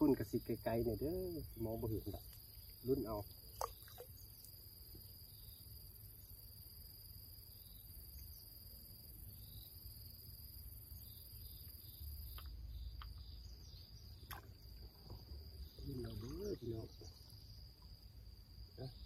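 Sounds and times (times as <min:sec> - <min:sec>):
insects droning: 0:00.0 - 0:19.0
faint ticks: 0:08.0 - 0:08.5, 0:11.6 - 0:13.4.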